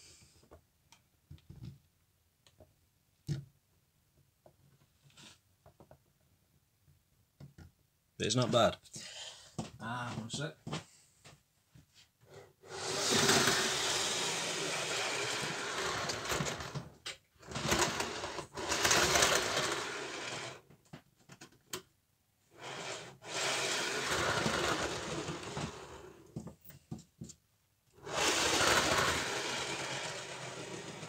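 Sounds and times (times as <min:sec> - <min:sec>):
small motor whirring: 0:12.7 - 0:16.6, 0:22.6 - 0:25.9, 0:28.0 - 0:31.0
model train wheels rumbling on rails: 0:12.7 - 0:16.8, 0:17.4 - 0:20.6, 0:22.6 - 0:26.1, 0:28.0 - 0:31.0.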